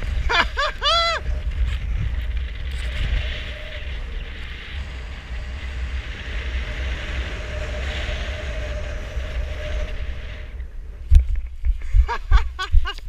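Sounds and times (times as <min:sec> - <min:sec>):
wind buffeting microphone: 0:00.0 - 0:13.0
faint steady whistle: 0:02.7 - 0:11.1.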